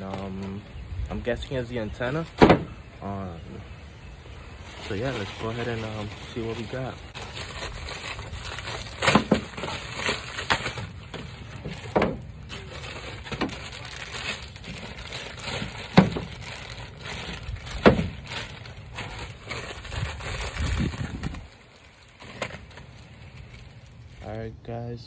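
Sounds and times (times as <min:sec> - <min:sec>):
packaging crinkling and rustling: 0:00.0 - 0:02.8, 0:04.5 - 0:24.3
packaging ripping: 0:04.8 - 0:24.2.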